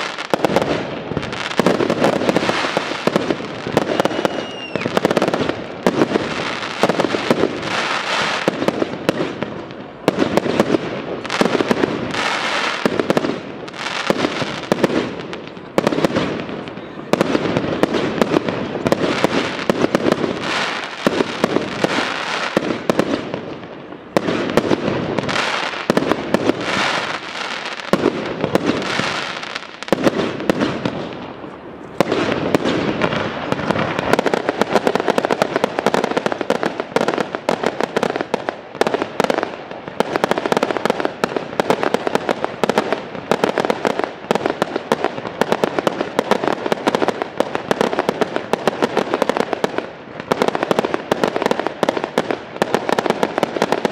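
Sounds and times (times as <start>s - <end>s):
fireworks bursting: 0.0s - 53.9s
firework whistle: 1.7s - 9.4s.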